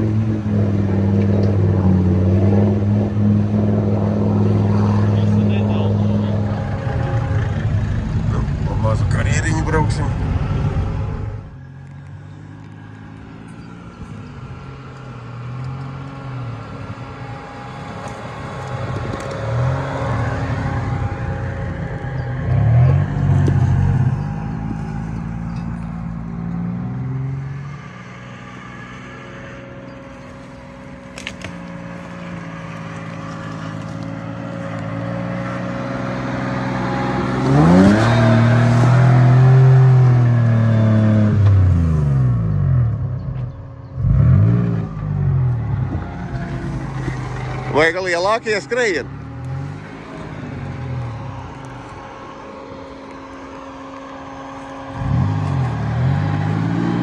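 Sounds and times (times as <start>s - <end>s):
truck engine revving: 0.0s - 43.2s, 43.9s - 57.0s.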